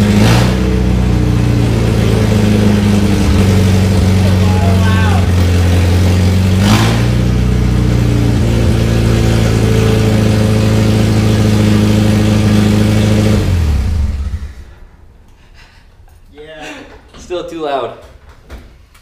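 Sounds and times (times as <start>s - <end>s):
loud unmuffled car engine: 0.0s - 14.8s.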